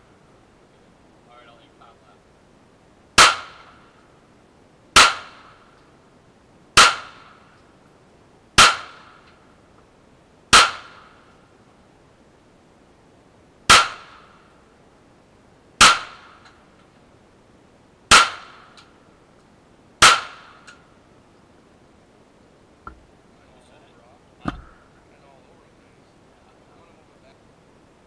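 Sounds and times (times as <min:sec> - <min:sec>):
pistol shots with echo: 0:03.2 - 0:03.7, 0:05.0 - 0:05.5, 0:06.8 - 0:07.4, 0:08.6 - 0:09.1, 0:10.5 - 0:11.2, 0:13.7 - 0:14.3, 0:15.8 - 0:16.4, 0:18.1 - 0:18.6, 0:20.0 - 0:20.7.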